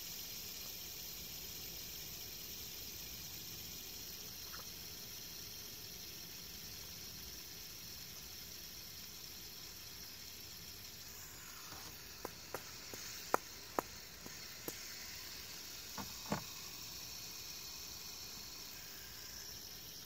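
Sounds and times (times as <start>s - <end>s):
steady hiss: 0.0s - 20.0s
fidget spinner clicks and taps: 11.5s - 15.4s.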